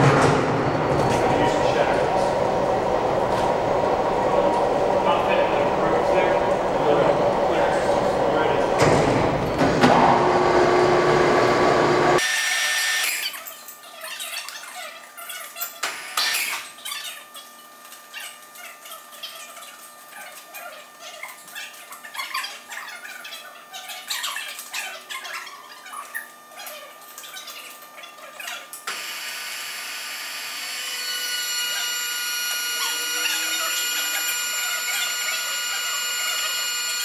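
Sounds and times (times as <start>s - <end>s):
machine whine: 0.0s - 13.2s, 28.8s - 37.0s.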